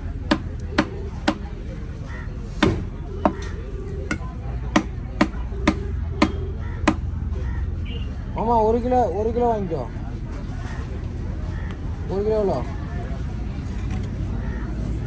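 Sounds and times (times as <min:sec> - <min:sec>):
knife chopping on wooden block: 0:00.3 - 0:01.5.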